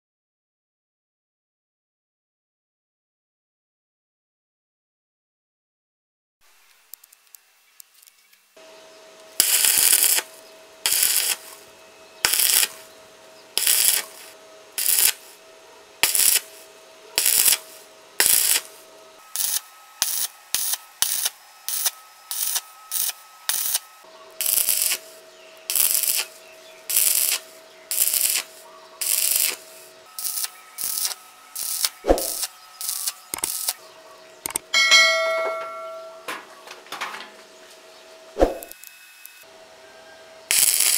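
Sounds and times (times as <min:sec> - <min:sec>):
welding arc crackling: 0:09.2 - 0:15.4, 0:16.0 - 0:33.8, 0:38.4 - 0:39.4, 0:40.5 - 0:40.9
ringing chime: 0:34.7 - 0:36.3.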